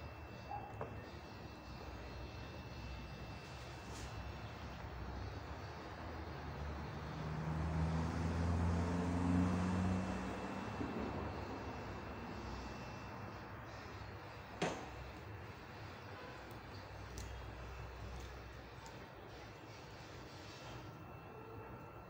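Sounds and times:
steady background noise: 0.0 - 22.0
passing vehicle engine hum: 4.4 - 14.4.

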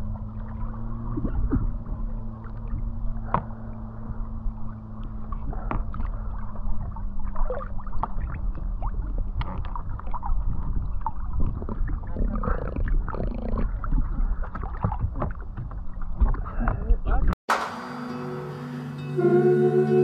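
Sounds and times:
faint low hum: 0.0 - 15.0
muffled water gurgling and sloshing: 0.0 - 17.4.

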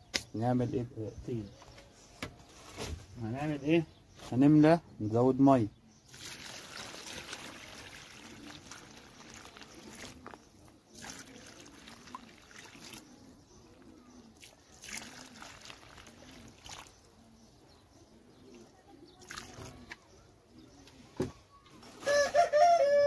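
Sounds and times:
water trickling and splashing: 6.1 - 17.2, 18.5 - 20.1.

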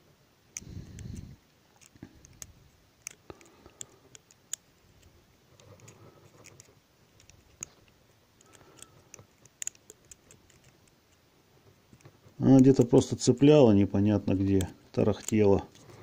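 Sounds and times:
needle tapping plastic and metal: 5.6 - 11.0, 14.3 - 15.8.

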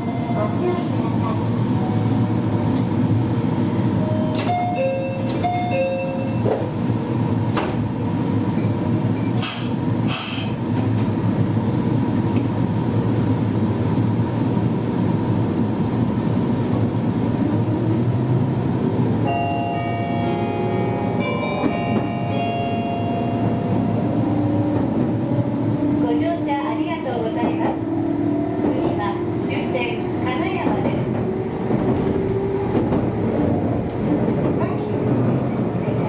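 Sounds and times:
train motor and wheel noise: 0.0 - 36.0
two-note chime: 19.3 - 23.8.

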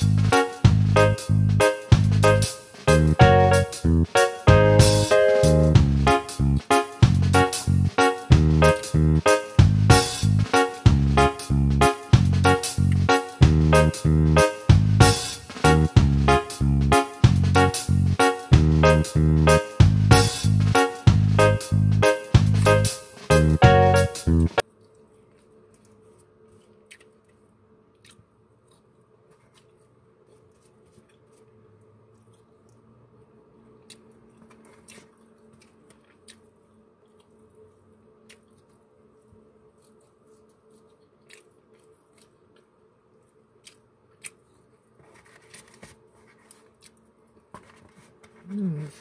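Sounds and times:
chewing: 24.6 - 47.8.

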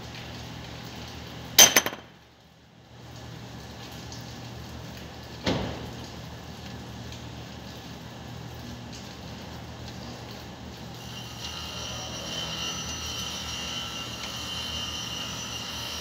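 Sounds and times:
metal-on-metal clanks: 1.6 - 2.1.

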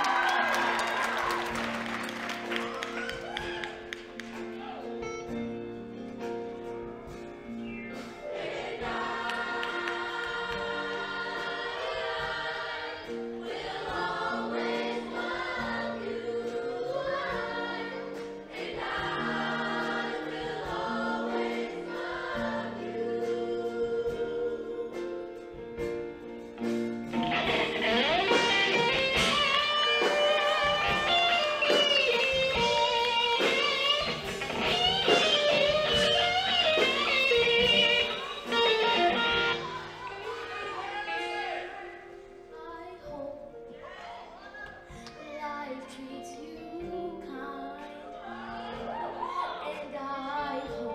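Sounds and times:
instrumental accompaniment: 0.0 - 43.4
choir singing held chords: 7.8 - 25.5.

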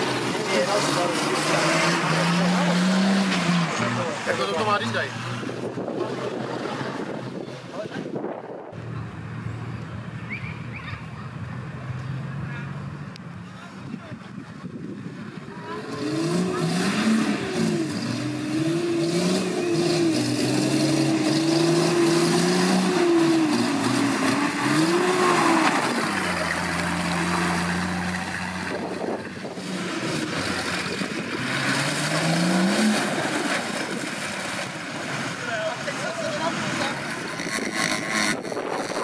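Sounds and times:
engine revving: 0.0 - 7.5, 15.7 - 39.0.

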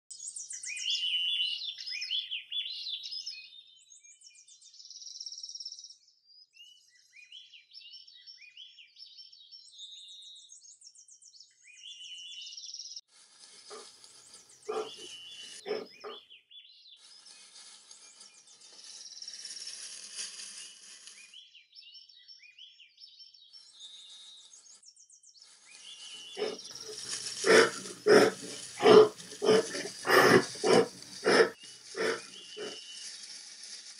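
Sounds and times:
rustling bursts: 13.2 - 16.2, 17.3 - 21.2, 26.1 - 33.9
songbirds chirping: 13.4 - 19.6, 25.4 - 33.8
loud rough bursts: 26.4 - 32.8.

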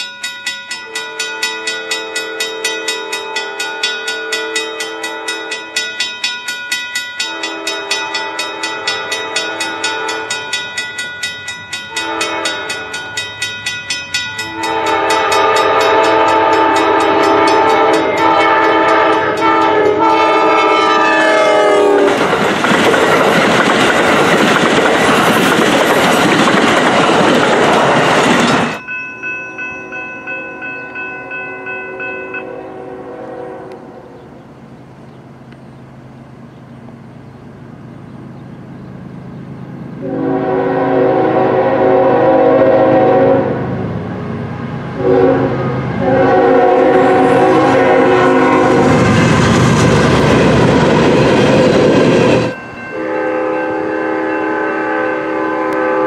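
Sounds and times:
crossing warning bell ringing: 0.0 - 22.2, 23.0 - 34.7, 36.9 - 56.0
locomotive horn: 0.8 - 5.8, 7.2 - 10.6, 11.9 - 13.1, 14.4 - 22.2, 31.2 - 34.3, 40.0 - 49.8, 52.2 - 56.0
train wheels clattering on rails: 21.4 - 28.8.

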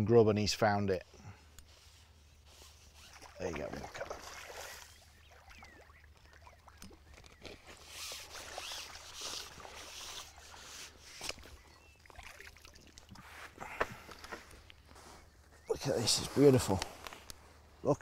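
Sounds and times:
fish splashing in water: 3.1 - 13.2.

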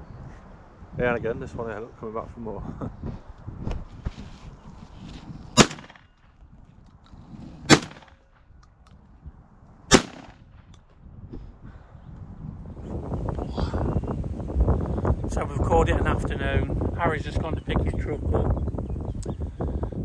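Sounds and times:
loud shotgun shots: 5.6 - 6.1, 7.6 - 8.2, 9.9 - 10.6.

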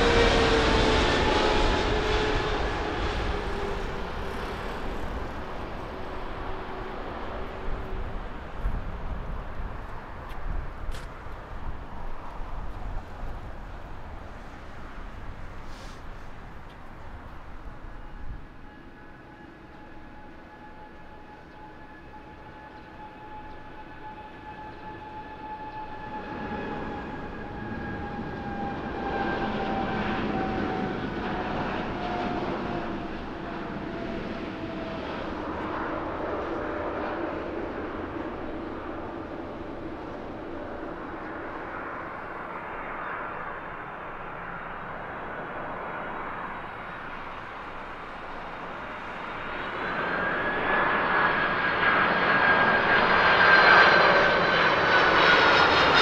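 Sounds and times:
approaching jet whine: 0.0 - 56.0
jet engines at takeoff: 0.0 - 56.0.

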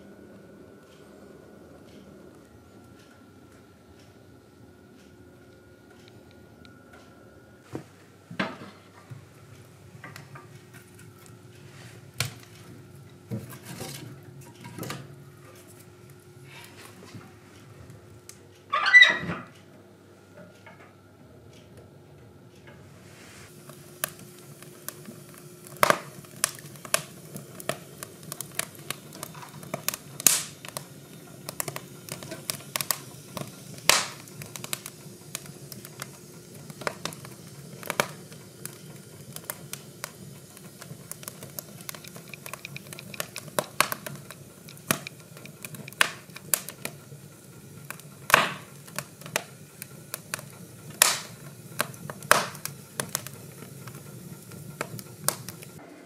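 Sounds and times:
logs crackling and popping in stove: 0.0 - 55.8.

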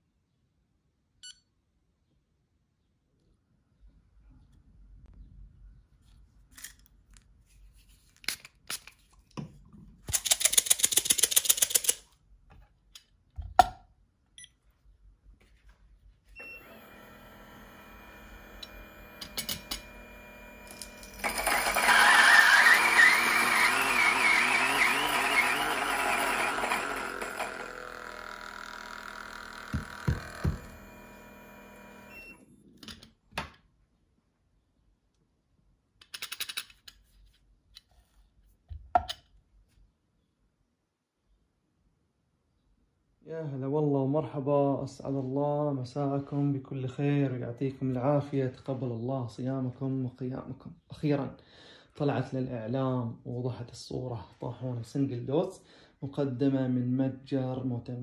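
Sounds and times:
coffee grinder motor grinding: 16.4 - 32.4.

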